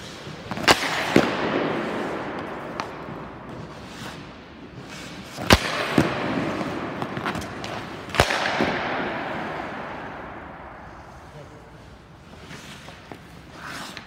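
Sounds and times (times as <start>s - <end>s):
hockey stick cracking puck: 0.0s - 11.2s
pucks clacking: 0.0s - 11.3s.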